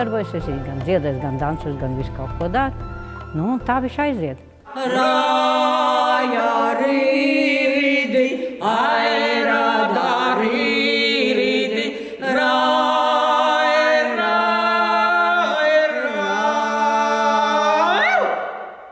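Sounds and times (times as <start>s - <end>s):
women singing unaccompanied: 4.7s - 18.4s.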